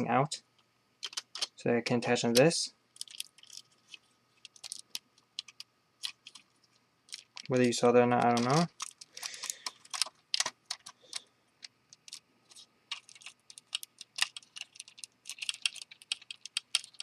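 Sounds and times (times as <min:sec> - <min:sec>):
plastic bricks clicking: 0:07.1 - 0:17.0.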